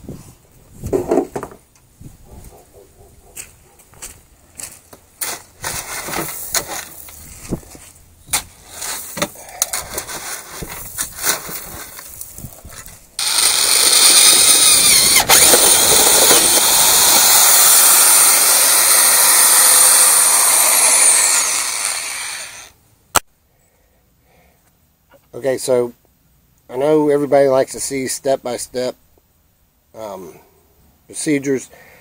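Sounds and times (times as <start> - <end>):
shovel scraping gravelly soil: 5.2 - 16.7.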